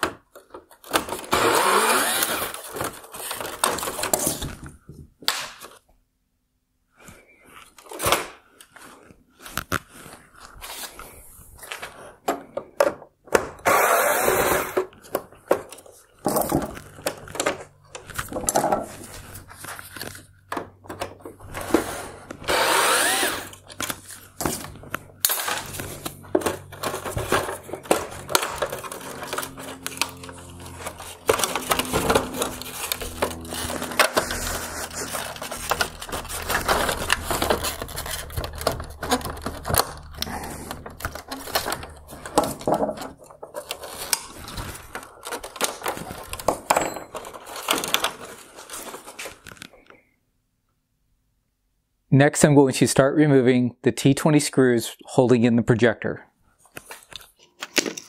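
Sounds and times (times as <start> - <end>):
plastic clicking and creaking: 14.7 - 22.5, 23.3 - 50.0
rasping scrape: 26.8 - 42.7.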